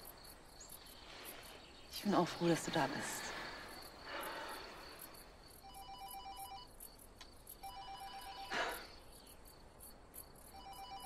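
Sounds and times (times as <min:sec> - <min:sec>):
crickets chirping: 0:00.0 - 0:11.0
mobile phone ringing: 0:05.6 - 0:06.7, 0:07.6 - 0:08.7, 0:10.6 - 0:11.0.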